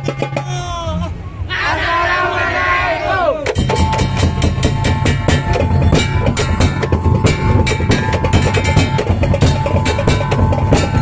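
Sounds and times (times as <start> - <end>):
barrel drums beating: 3.4 - 11.0
steady high tone: 3.6 - 11.0.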